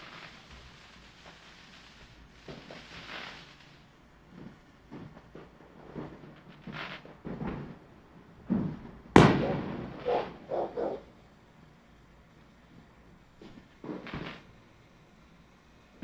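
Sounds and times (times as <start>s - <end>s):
fireworks popping and banging: 0.0s - 11.3s, 13.4s - 14.6s.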